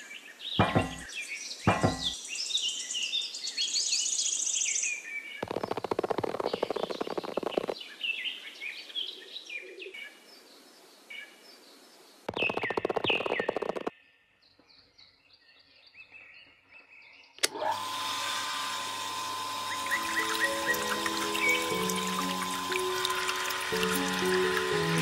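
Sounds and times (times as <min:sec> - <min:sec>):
small birds chirping: 0:00.0 - 0:17.4, 0:19.6 - 0:25.0
rapid buzzing rattle: 0:05.4 - 0:07.8, 0:12.3 - 0:13.9, 0:19.4 - 0:25.0
background music: 0:19.8 - 0:25.0.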